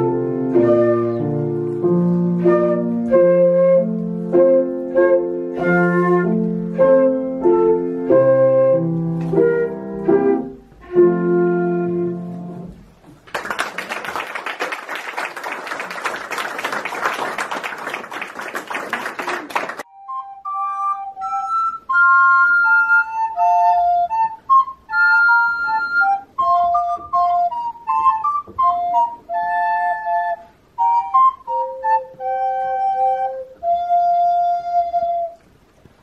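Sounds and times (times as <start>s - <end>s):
flute playing a melody: 0.0s - 12.7s, 19.8s - 35.5s
piano accompaniment: 0.0s - 13.2s, 19.6s - 35.5s
applause: 13.2s - 19.9s.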